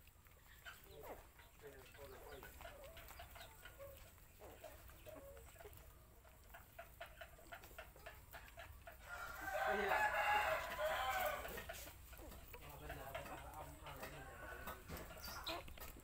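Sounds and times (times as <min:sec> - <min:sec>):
faint clucking: 0:00.0 - 0:10.5, 0:11.4 - 0:16.0
rooster crowing: 0:09.0 - 0:11.6.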